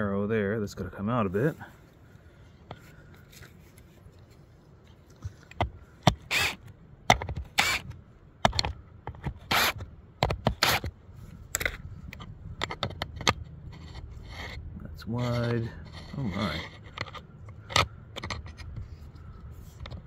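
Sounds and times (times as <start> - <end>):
metal gauge scraping on rails: 13.3 - 20.0.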